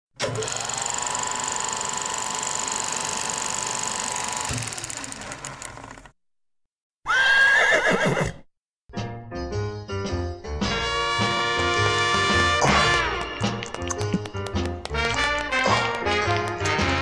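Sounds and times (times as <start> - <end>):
steady whirr: 0.2 - 6.1
horse whinnying: 7.0 - 8.5.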